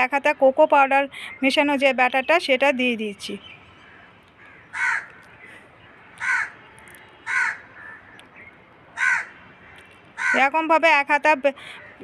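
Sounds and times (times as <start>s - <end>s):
bird calling: 3.3s - 10.7s.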